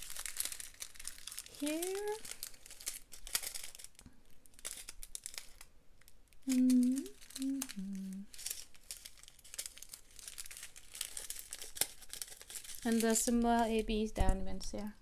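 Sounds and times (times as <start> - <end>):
plastic bags crinkling: 0.0 - 13.8
woman humming: 6.5 - 8.3.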